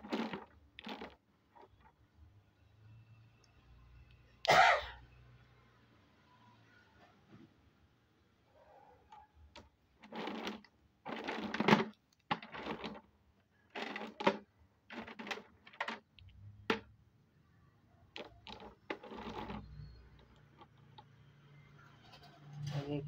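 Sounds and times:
clay lumps clattering and scraping: 0:00.0 - 0:02.0, 0:09.6 - 0:16.9, 0:18.1 - 0:21.1.

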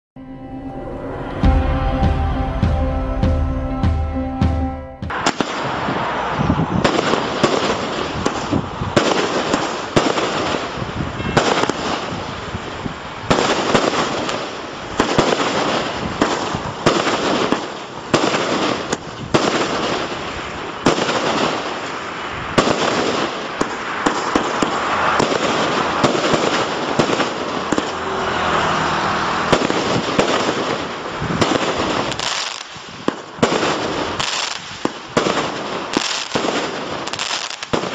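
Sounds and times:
short music sting: 0:00.2 - 0:05.1
firework shots: 0:05.1 - 0:28.3, 0:29.2 - 0:37.9.

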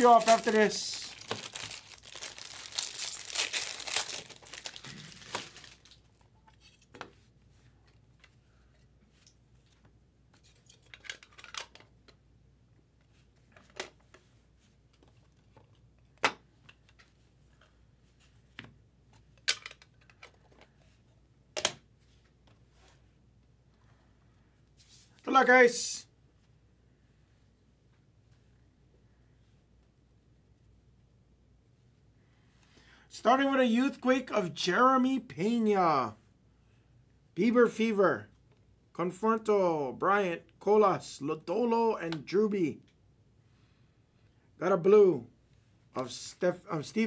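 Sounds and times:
foil wrapper tearing and crinkling: 0:00.0 - 0:06.0.

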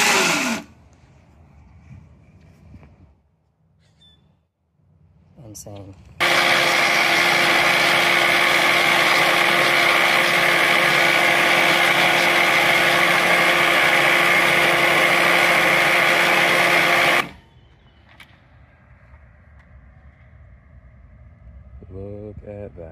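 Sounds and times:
reel mower cutting grass: 0:00.0 - 0:00.7, 0:06.2 - 0:17.3.

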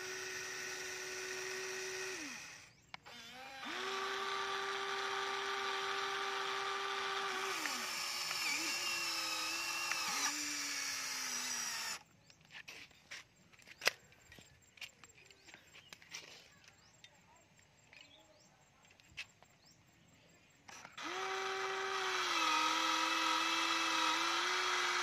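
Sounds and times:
toy gear motors whining: 0:00.0 - 0:12.1, 0:20.6 - 0:25.0.

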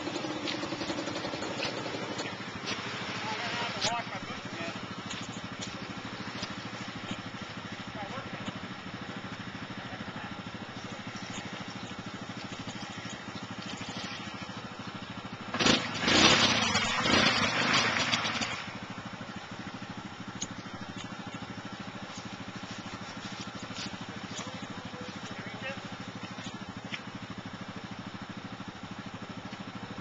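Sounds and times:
tyres churning mud: 0:00.0 - 0:14.8, 0:15.6 - 0:18.8
quad engine idling and revving: 0:00.0 - 0:30.0.

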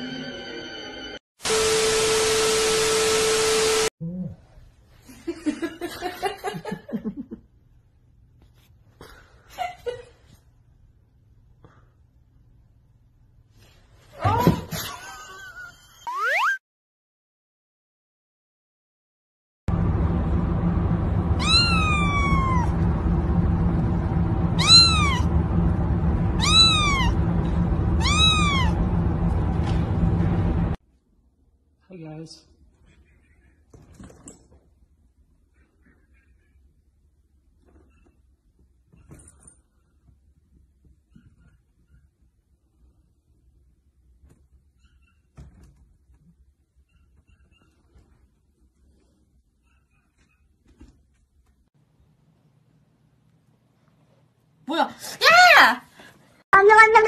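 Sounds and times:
low background hum: 0:19.7 - 0:57.0
kitten meowing: 0:21.4 - 0:22.7, 0:24.6 - 0:25.3, 0:26.4 - 0:27.2, 0:28.0 - 0:28.8.

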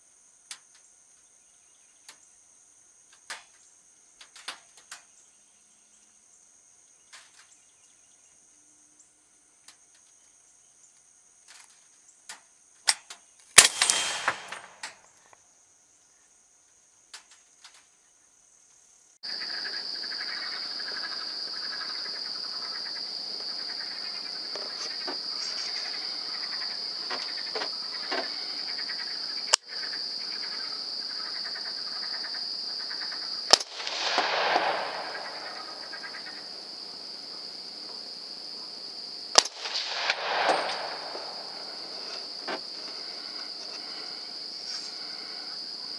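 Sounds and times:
insects droning: 0:00.0 - 0:45.9
rifle shots: 0:13.6 - 0:14.9, 0:33.5 - 0:36.2, 0:39.4 - 0:42.3.

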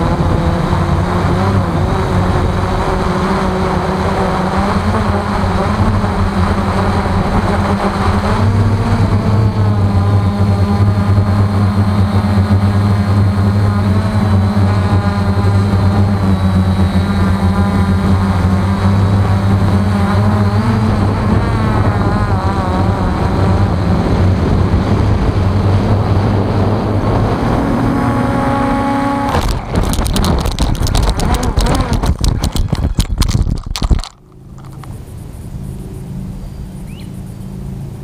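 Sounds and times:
model aircraft motor whining: 0:00.0 - 0:35.0
model aircraft crashing on grass: 0:29.2 - 0:34.9.

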